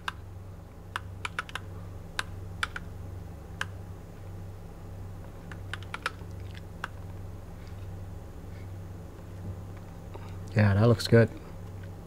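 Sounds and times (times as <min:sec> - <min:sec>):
low steady hum: 0:00.0 - 0:12.0
mechanical keyboard keys clicking: 0:05.5 - 0:06.2.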